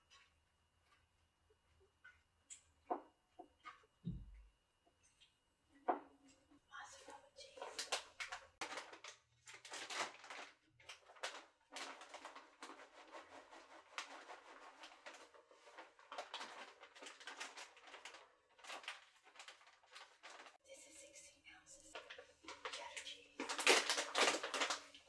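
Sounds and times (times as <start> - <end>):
plastic bag crinkling: 7.4 - 20.6, 21.8 - 25.0.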